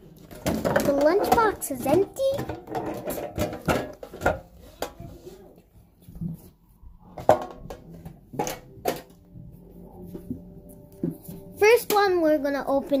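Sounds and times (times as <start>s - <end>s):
metal tin knocks and clanks: 0.2s - 5.0s, 7.2s - 9.2s.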